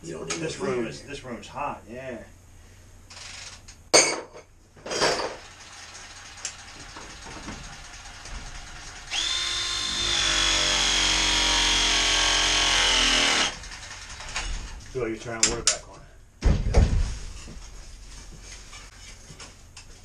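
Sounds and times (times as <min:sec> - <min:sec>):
power tool motor whining: 0:05.4 - 0:14.4.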